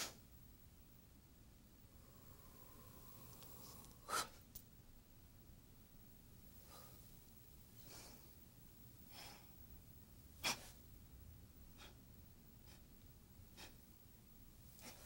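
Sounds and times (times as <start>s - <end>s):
faint puffs of noise: 1.8s - 4.8s, 5.9s - 11.0s.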